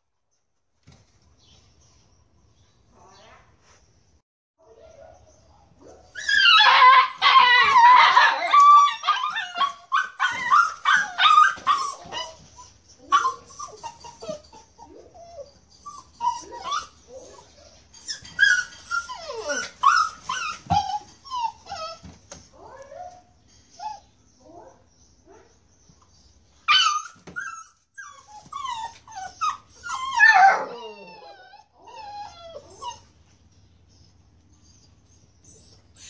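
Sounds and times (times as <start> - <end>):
dogs whining and yipping: 5.8 - 24.7, 26.0 - 36.0.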